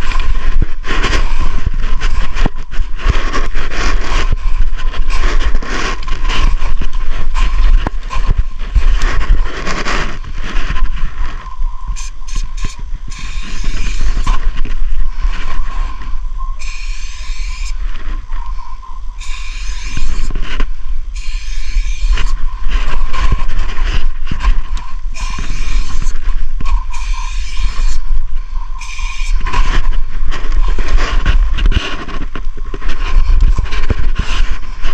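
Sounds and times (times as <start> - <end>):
steady low rumble: 0.0 - 34.9
spray paint can hissing: 11.9 - 14.4, 16.6 - 17.8, 19.2 - 20.4, 21.1 - 22.4, 25.1 - 28.0, 28.8 - 29.7.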